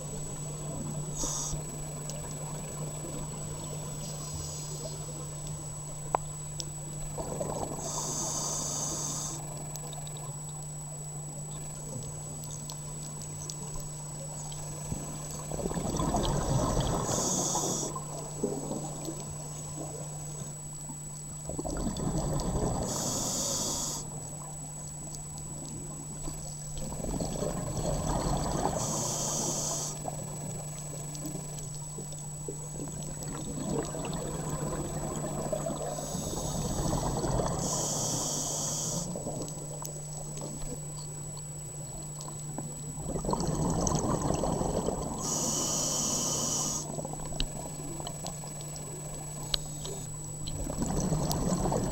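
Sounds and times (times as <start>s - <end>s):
steady low hum: 0.0s - 51.9s
diver breathing through regulator: 1.1s - 1.7s, 7.7s - 9.5s, 16.5s - 18.1s, 21.9s - 24.2s, 27.8s - 30.1s, 35.8s - 39.3s, 43.6s - 47.0s
exhaled bubbles rushing: 15.5s - 17.1s, 21.5s - 22.9s, 26.8s - 28.8s, 32.9s - 36.0s, 36.6s - 37.6s, 43.0s - 45.2s, 50.5s - 51.9s.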